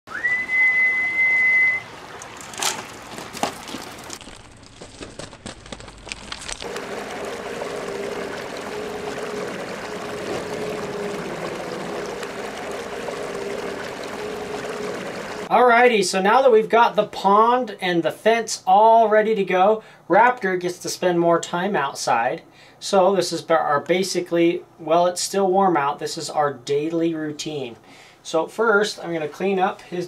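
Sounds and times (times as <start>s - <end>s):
water trickling in pond: 0.1s - 15.5s
high steady tone: 6.7s - 15.5s.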